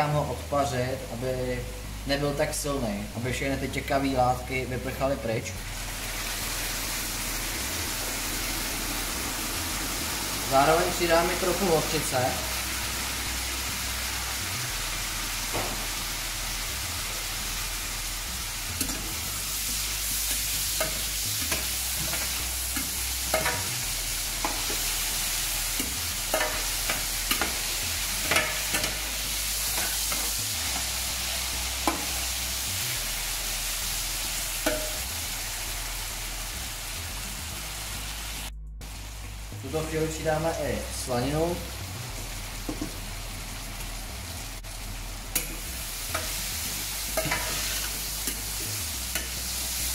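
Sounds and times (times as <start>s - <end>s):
vegetables sizzling in fat: 0.0s - 49.9s
spatula scraping metal pan: 47.2s - 48.4s.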